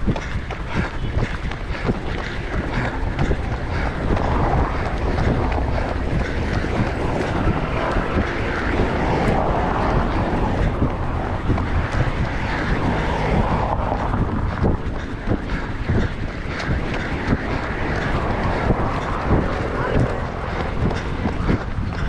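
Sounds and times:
rumbling wind on microphone: 0:00.0 - 0:22.0.

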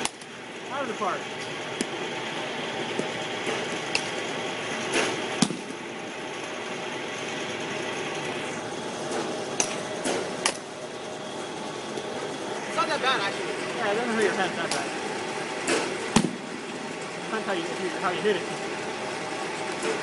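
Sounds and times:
bat hitting balls: 0:00.0 - 0:00.4, 0:01.4 - 0:02.2, 0:02.8 - 0:06.5, 0:09.1 - 0:10.7, 0:15.6 - 0:16.6
pitching machine running: 0:00.0 - 0:20.0.

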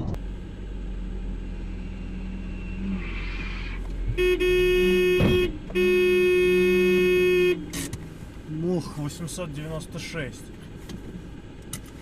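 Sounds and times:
road and engine rumble: 0:00.0 - 0:12.0
car horn blasts: 0:04.1 - 0:07.8
brief low thump: 0:05.2 - 0:05.5.

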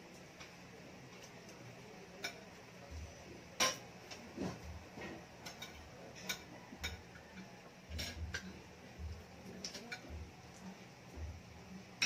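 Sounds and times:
cutlery clinking on plates: 0:02.2 - 0:02.6, 0:03.6 - 0:08.6, 0:09.6 - 0:10.2.

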